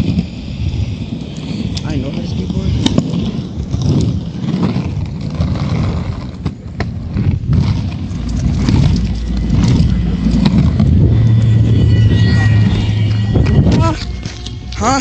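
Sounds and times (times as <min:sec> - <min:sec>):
skateboard wheels rolling on pavement: 0:00.0 - 0:15.0
steady low hum: 0:00.0 - 0:15.0.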